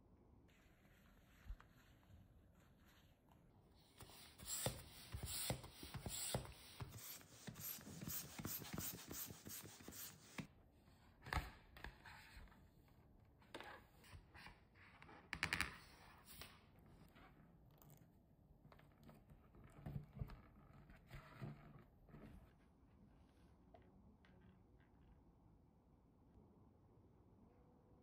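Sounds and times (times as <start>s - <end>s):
rubber balloon rubbing on hands: 3.8s - 10.5s
balloon pump puffing: 4.0s - 10.5s.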